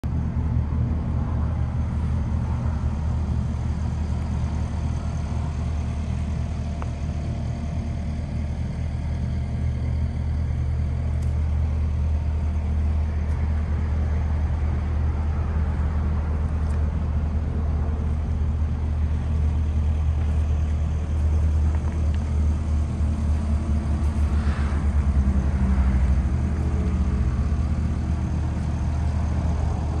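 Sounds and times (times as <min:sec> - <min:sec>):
engine idling: 0:00.0 - 0:30.0.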